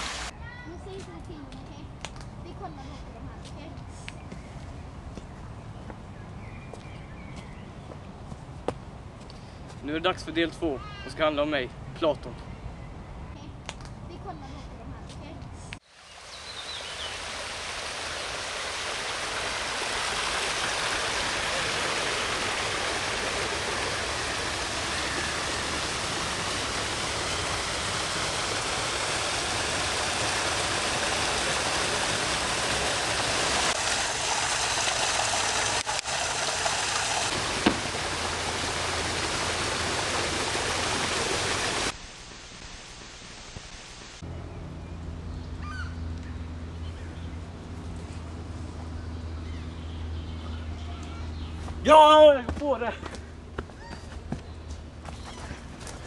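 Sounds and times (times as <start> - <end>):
water cascading into brook: 0.0 - 0.3, 15.8 - 44.2.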